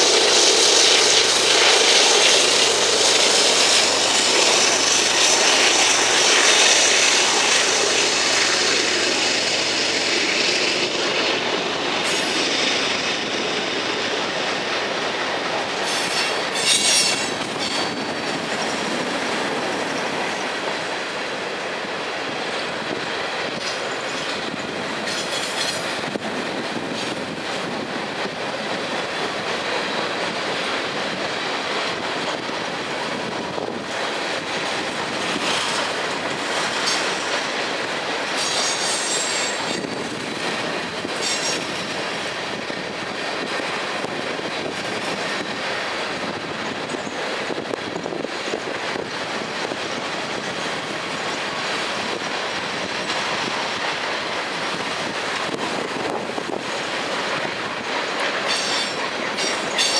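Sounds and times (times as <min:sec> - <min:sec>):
freight train wheels clattering: 0:00.0 - 0:59.9
high wheel squeal: 0:15.8 - 0:18.8, 0:38.4 - 0:39.9, 0:41.2 - 0:41.8.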